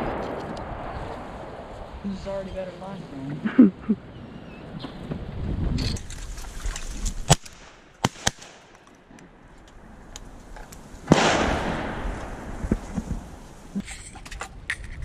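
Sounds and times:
shotgun shot echoing: 7.3s - 8.7s, 11.1s - 12.6s.

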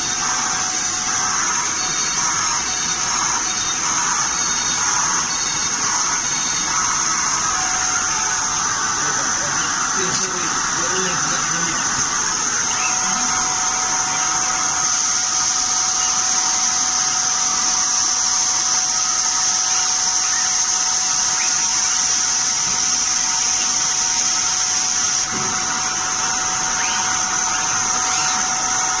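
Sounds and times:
router machinery hiss and whine: 0.0s - 29.0s.

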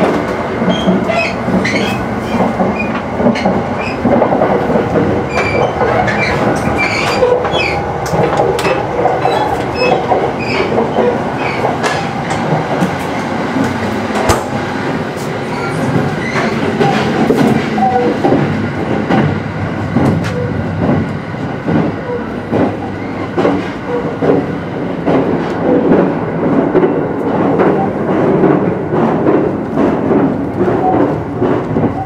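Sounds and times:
train car rumbling: 0.0s - 32.0s
train clicks: 0.0s - 32.0s
high squeaks: 5.3s - 7.8s.

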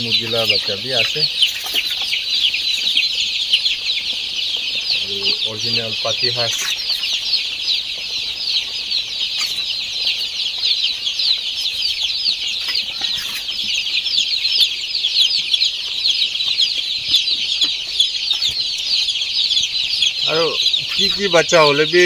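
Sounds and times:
chicks and ducklings peeping: 0.0s - 22.0s.

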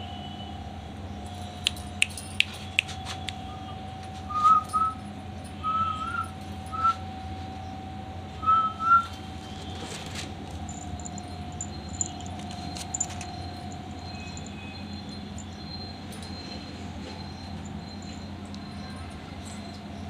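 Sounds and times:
sharp clicks: 1.7s - 3.4s
person whistling chirps: 4.3s - 5.0s, 5.6s - 7.0s, 8.4s - 9.1s.

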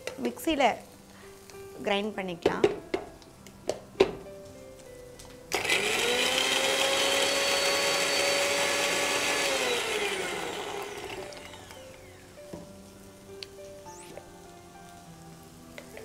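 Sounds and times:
mixer grinder motor whining: 5.5s - 12.4s.

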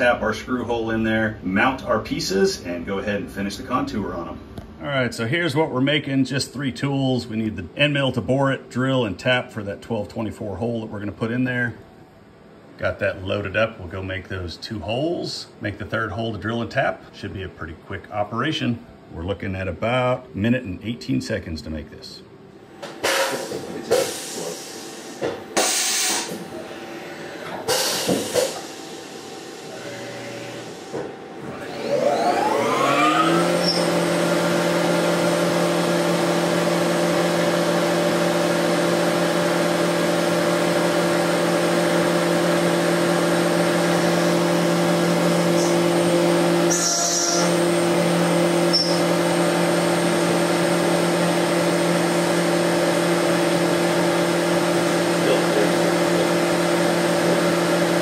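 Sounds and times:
mill spindle whine: 18.5s - 58.0s
coolant spraying hiss: 23.0s - 26.4s.

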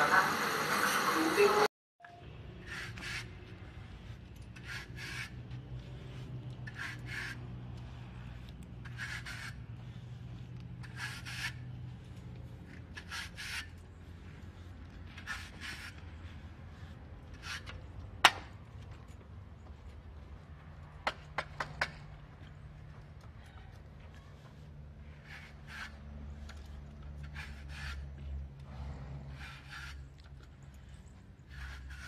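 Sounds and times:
scraping a horse hoof: 2.6s - 18.6s, 23.4s - 32.0s.

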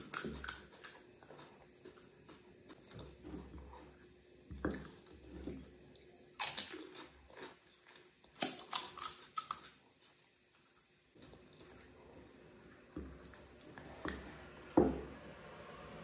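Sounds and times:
chewing crisp shells: 6.4s - 9.8s.

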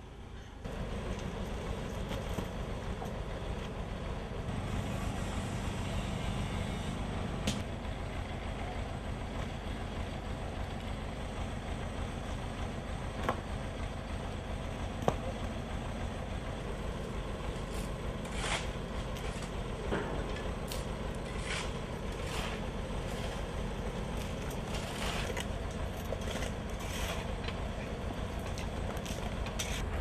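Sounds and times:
diesel engine running: 0.6s - 30.0s
knocks and scrapes of asphalt: 17.5s - 30.0s.

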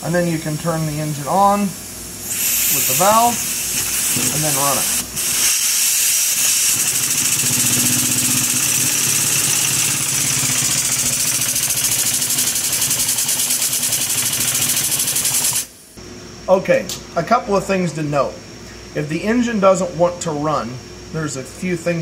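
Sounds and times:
steady air hiss: 0.0s - 12.9s
model engine exhaust puffs: 2.3s - 15.6s.

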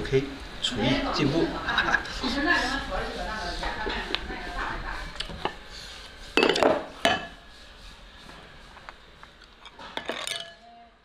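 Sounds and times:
porcelain bowls and chopsticks clinking: 6.4s - 7.4s, 9.4s - 10.6s.

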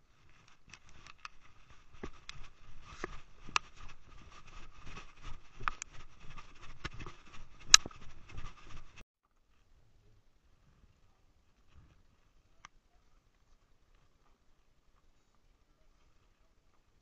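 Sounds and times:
clothing rubbing on microphone: 0.0s - 9.0s.

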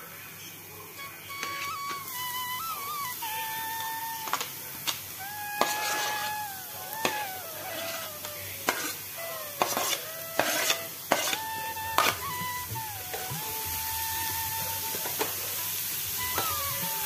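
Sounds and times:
vegetables sizzling in pan: 0.0s - 17.0s
soft flute melody: 0.9s - 17.0s
spoon scraping chopping board: 1.4s - 1.7s, 5.6s - 6.3s, 7.0s - 9.0s, 9.6s - 12.2s.

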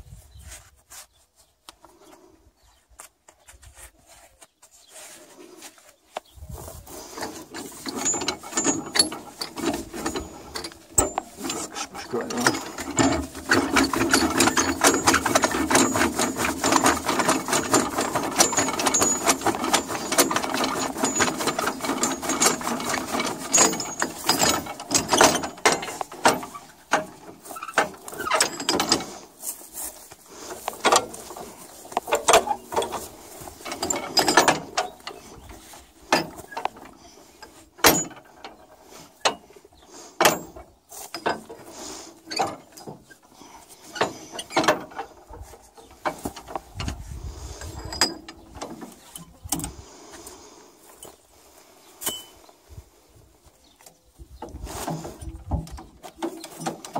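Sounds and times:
metal clanks and knocks: 7.0s - 29.6s, 30.4s - 39.5s, 40.2s - 49.8s, 54.4s - 56.9s
metallic ratcheting clatter: 7.1s - 29.3s, 30.6s - 38.4s.

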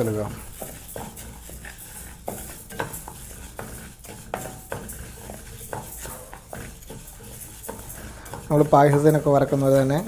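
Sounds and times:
spatula stirring lentils in pan: 0.0s - 10.0s.

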